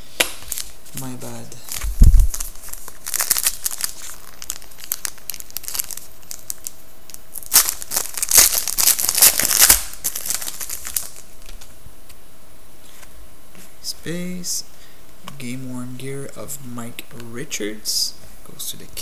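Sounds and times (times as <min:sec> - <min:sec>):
foil wrapper crinkling and tearing: 0:00.3 - 0:11.7.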